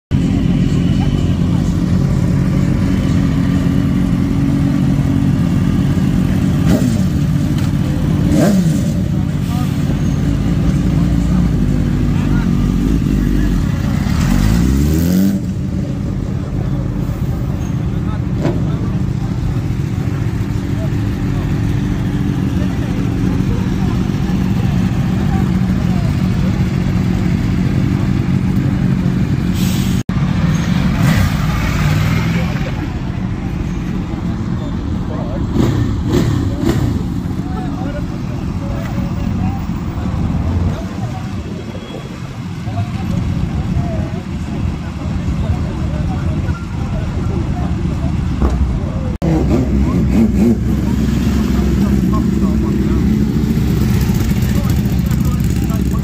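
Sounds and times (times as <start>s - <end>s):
motorcycle engine running: 0.1s - 29.5s, 30.3s - 56.0s
motorcycle throttle rev: 0.4s - 16.7s, 48.2s - 56.0s.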